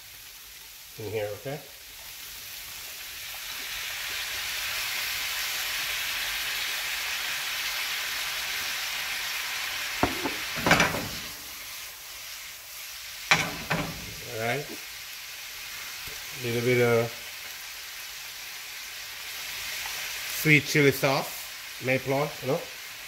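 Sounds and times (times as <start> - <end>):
vegetables sizzling in a skillet: 0.0 - 23.0
pan clanking on gas grate: 10.0 - 11.6, 13.3 - 14.4.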